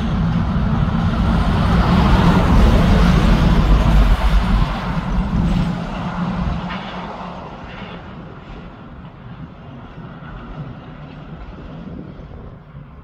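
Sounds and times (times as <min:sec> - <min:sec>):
truck driving away: 0:00.0 - 0:07.9.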